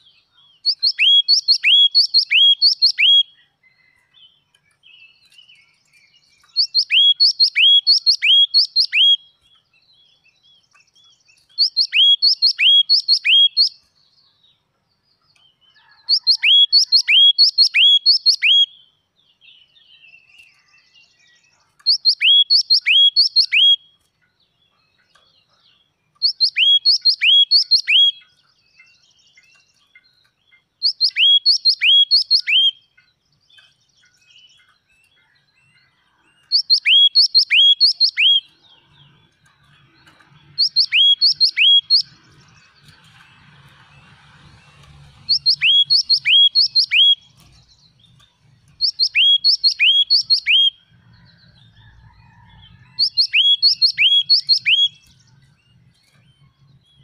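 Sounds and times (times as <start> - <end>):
bird song with descending notes: 0.0 - 57.0.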